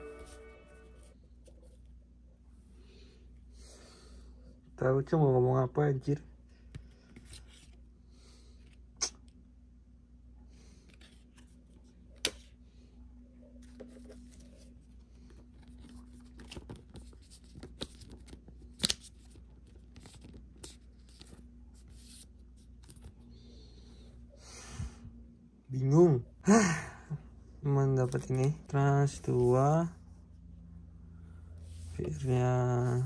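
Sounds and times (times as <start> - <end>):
faint steady hum: 0.0 - 33.0
trading cards clicking and rustling: 13.6 - 23.3
card snapping: 18.7 - 19.1.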